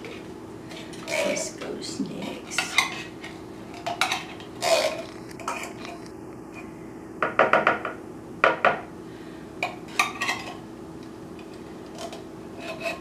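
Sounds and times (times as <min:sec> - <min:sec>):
metal spoon scraping tin can: 0:00.8 - 0:01.5, 0:04.1 - 0:06.0, 0:12.0 - 0:13.0.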